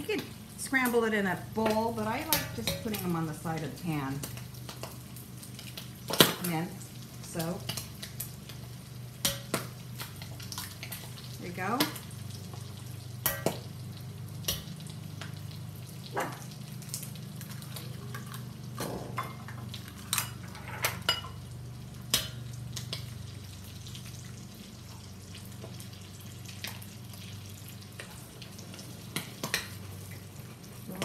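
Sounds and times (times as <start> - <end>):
eggs and bacon sizzling in a wok: 0.0 - 31.0.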